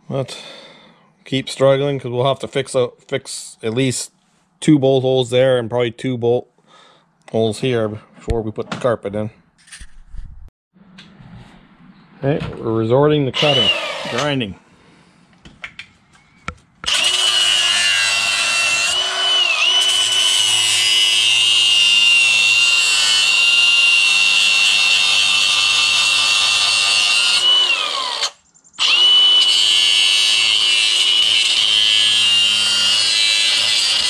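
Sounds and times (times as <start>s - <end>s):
angle grinder cutting steel: 13.4s - 14.4s, 16.8s - 34.0s.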